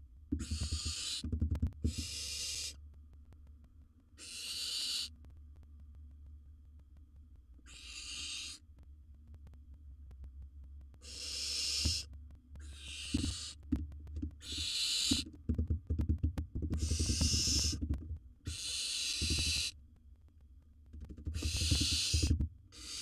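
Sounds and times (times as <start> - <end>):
barn owl hissing: 0.4 - 2.8, 4.2 - 5.2, 7.7 - 8.6, 11.0 - 13.7, 14.4 - 15.3, 16.8 - 19.8, 21.3 - 23.0
knocks and scuffling in nest box: 21.2 - 22.5.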